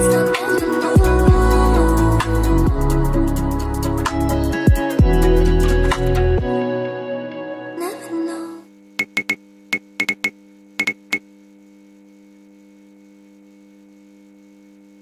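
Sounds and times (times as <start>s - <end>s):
neon sign electrical hum: 8.6s - 15.0s.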